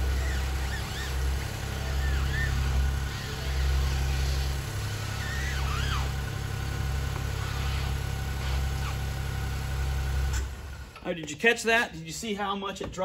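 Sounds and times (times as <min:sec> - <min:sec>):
steering squeaks: 0:00.0 - 0:09.2
car engine idling: 0:00.0 - 0:11.4.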